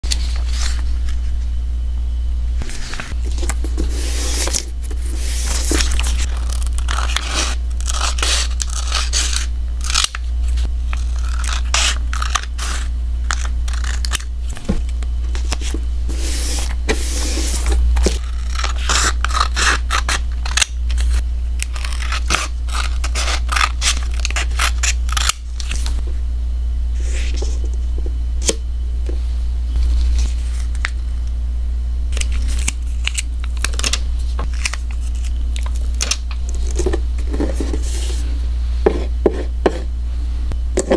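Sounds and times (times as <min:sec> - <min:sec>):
steady low hum: 0:00.0 - 0:40.9
plastic film crinkling: 0:32.2 - 0:36.8.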